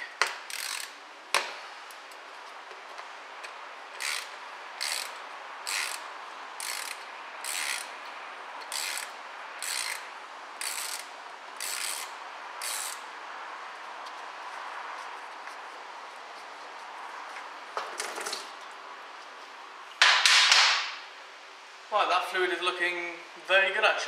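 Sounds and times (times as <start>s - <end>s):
ratchet wrench ratcheting: 0.2s - 1.0s, 3.9s - 8.0s, 8.6s - 13.0s.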